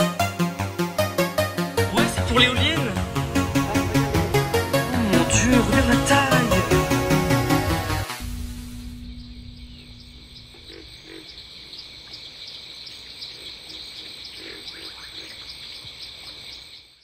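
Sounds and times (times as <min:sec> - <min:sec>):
low held music note: 0:02.8 - 0:11.3
insects trilling: 0:08.2 - 0:17.0.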